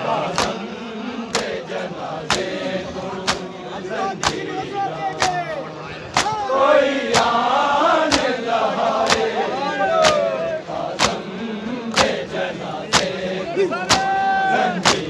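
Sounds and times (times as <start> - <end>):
men chanting and calling: 0.0 - 15.0
open-palm chest beats: 0.2 - 3.6, 7.1 - 7.4, 10.0 - 13.2, 13.8 - 15.0.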